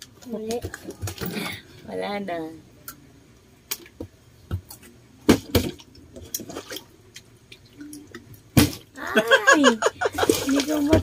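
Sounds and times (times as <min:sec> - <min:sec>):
water sloshing: 0:05.4 - 0:11.0.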